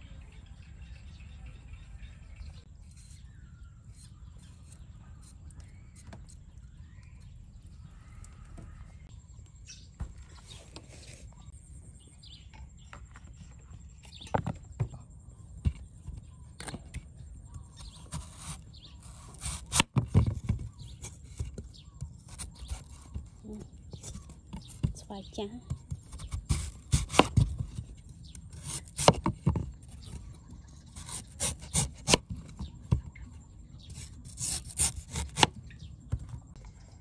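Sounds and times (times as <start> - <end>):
birds calling faintly: 0.0 - 37.0
knife slicing mango: 17.8 - 20.0, 20.7 - 24.9, 25.8 - 27.8, 28.4 - 30.1, 30.9 - 32.3, 33.9 - 35.6.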